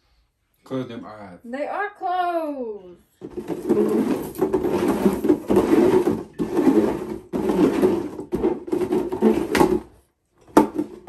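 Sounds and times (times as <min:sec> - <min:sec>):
plastic bins scraping on tiles: 0:03.2 - 0:11.0.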